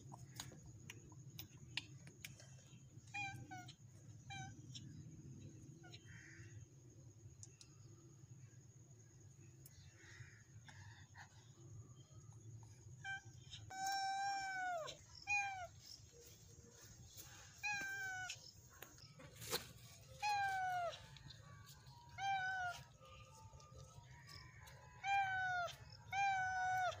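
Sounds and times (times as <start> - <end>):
cat meowing: 17.5 - 18.4, 22.1 - 23.0, 25.0 - 27.0.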